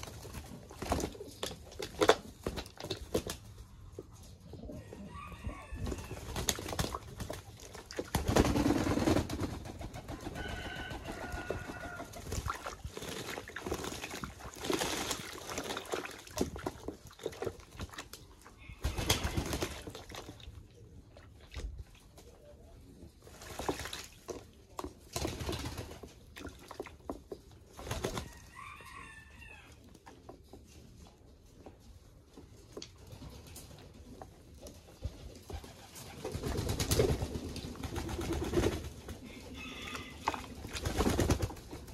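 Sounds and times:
pigeons splashing water: 0.0 - 3.8, 5.5 - 29.2, 35.1 - 41.9
wings flapping: 5.8 - 15.8, 18.8 - 19.9, 35.4 - 39.2, 40.7 - 41.9.

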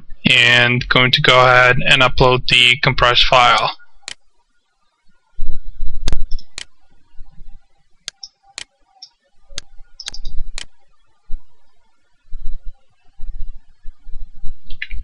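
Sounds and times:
mouse button clicking: 9.6 - 10.7
low rumble: 12.3 - 15.0.

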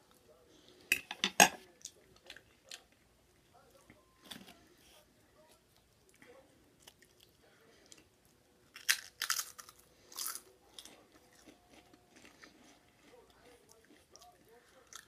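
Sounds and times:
chip being chewed: 8.7 - 15.0.

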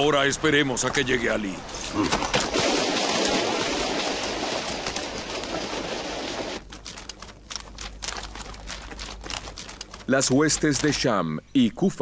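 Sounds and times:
water pouring over a ledge: 2.4 - 6.6
small clicks: 6.7 - 11.0.

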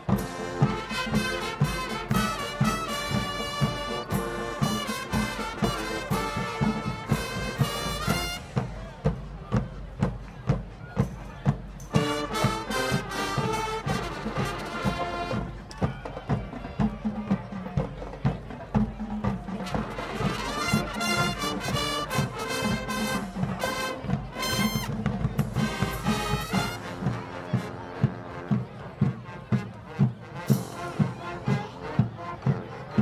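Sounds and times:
brass section playing: 0.0 - 8.7, 11.9 - 15.6, 19.6 - 33.0
marching band drum beat: 0.0 - 33.0.

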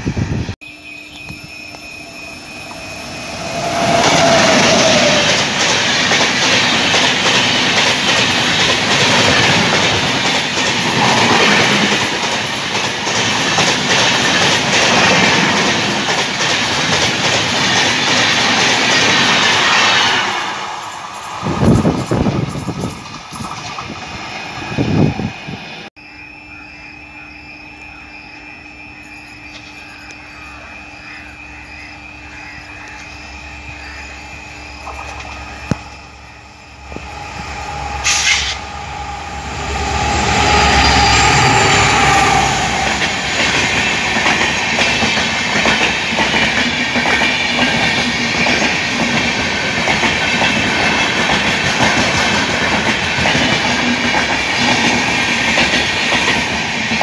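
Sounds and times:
train passing at speed: 0.0 - 26.6, 27.2 - 57.0
low drone: 29.6 - 44.2.

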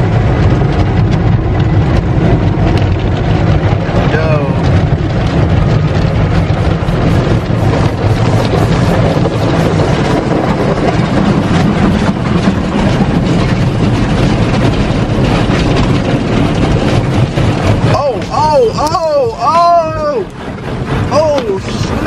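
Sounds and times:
deep rumble: 0.0 - 22.0.

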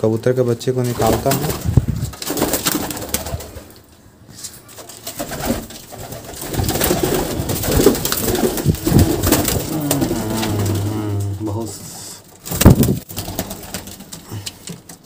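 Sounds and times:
pigeons cooing: 5.6 - 11.9.

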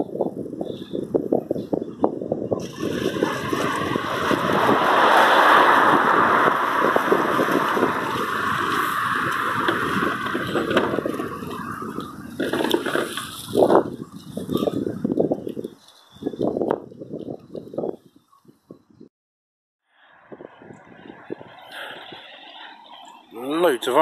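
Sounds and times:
flowing water: 2.6 - 14.6
ice floes scraping and knocking: 2.6 - 14.6.

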